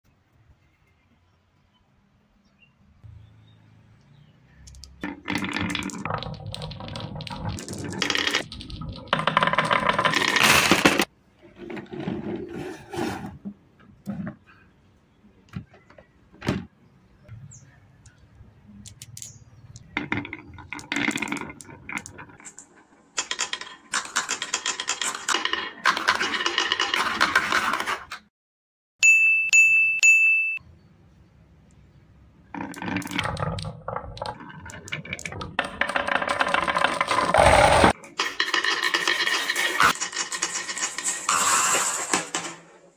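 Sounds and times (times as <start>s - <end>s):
marbles rolling down wooden groove: 4.7s - 11.1s, 19.9s - 22.6s, 23.2s - 28.0s, 32.5s - 42.5s.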